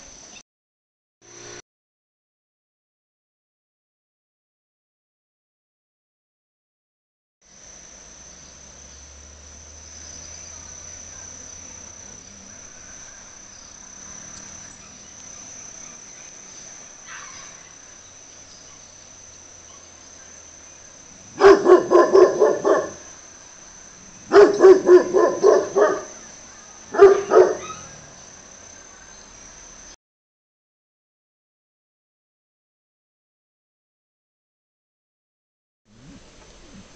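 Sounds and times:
high insect trill: 0.0 - 0.4, 7.4 - 30.0
dog barking: 17.0 - 17.6, 19.7 - 19.9, 21.3 - 23.1, 24.3 - 26.2, 26.9 - 28.0.

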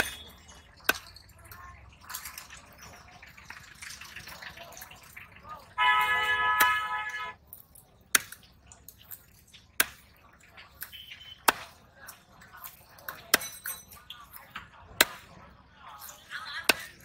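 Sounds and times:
knife chopping fish on wood: 11.4 - 11.8.

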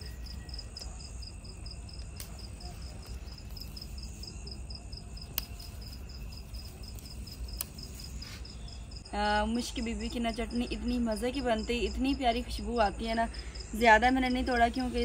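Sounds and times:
leaf stems snapping: 0.0 - 4.4, 5.0 - 8.5
crickets chirping: 0.0 - 15.0.

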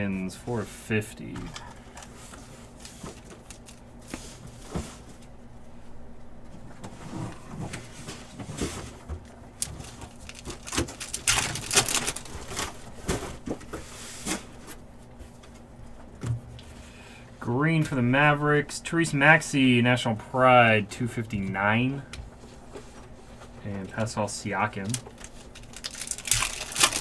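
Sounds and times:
wrappers crinkling and tearing: 9.6 - 12.8, 24.8 - 27.0.

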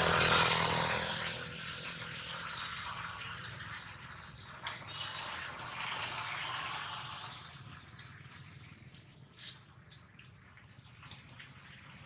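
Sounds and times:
dry leaves rustling and crackling: 8.2 - 10.1.

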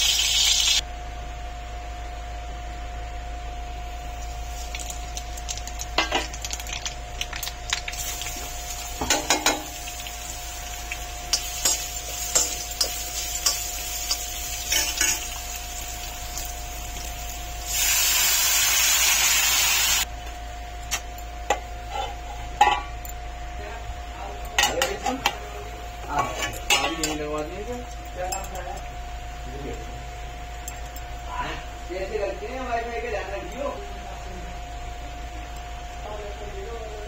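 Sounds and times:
oil sizzling hiss: 0.0 - 0.8, 4.0 - 6.8, 7.4 - 20.1.

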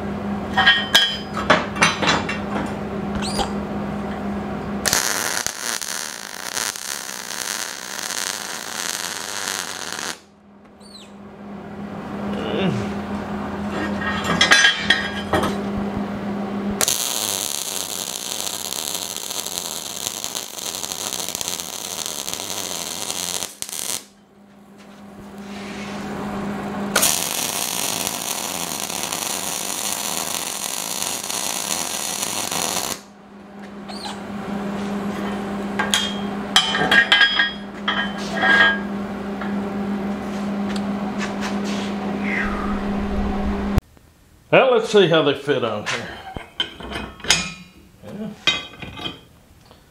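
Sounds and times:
steady low hum: 0.0 - 46.5
welder arc crackling and sizzling: 4.8 - 10.3, 16.8 - 24.2, 25.2 - 33.1.

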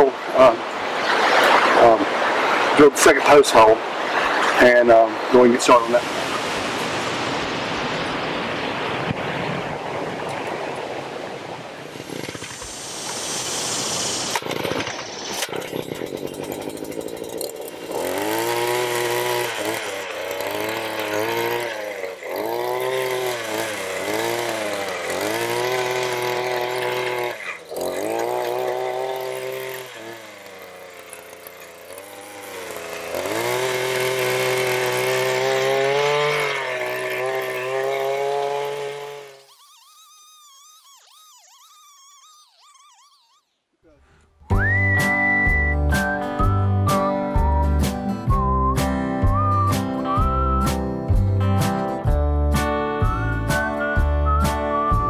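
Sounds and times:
small gas engine under load: 11.8 - 50.8.

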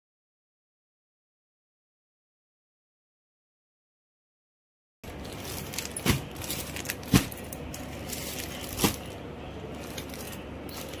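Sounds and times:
plastic packaging crinkling: 5.0 - 11.0
sharp plastic crackles: 5.0 - 11.0.

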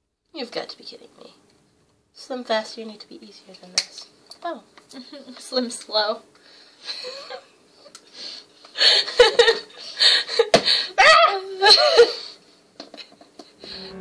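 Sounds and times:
women laughing: 8.8 - 9.7.

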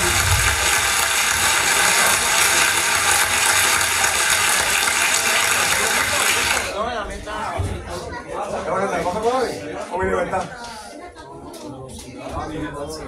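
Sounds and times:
congas: 0.0 - 6.7.

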